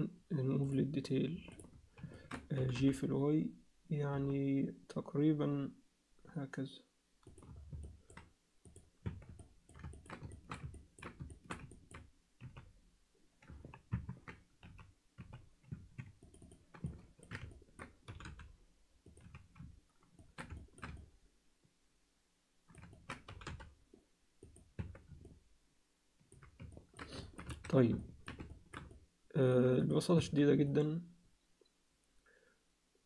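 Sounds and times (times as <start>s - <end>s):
keyboard and mouse clicking: 1.4s - 3.0s, 7.2s - 12.8s, 13.4s - 21.2s, 22.7s - 23.8s, 24.4s - 25.4s, 26.2s - 29.1s.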